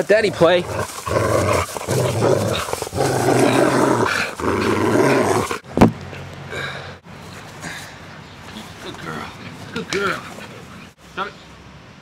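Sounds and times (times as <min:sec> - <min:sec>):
dog growling in play: 0:00.3 - 0:05.6.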